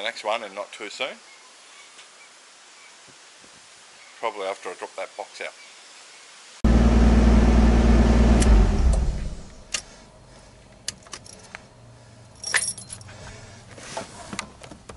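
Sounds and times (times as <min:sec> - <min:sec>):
loud low hum: 0:06.6 - 0:09.7
keys jingling: 0:10.9 - 0:11.6, 0:12.4 - 0:13.1.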